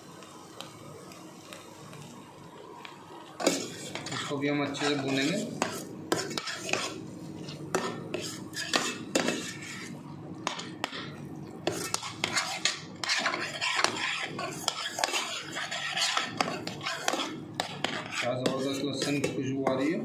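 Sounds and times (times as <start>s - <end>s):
spatula scraping metal pan: 3.4s - 11.0s, 11.6s - 19.9s.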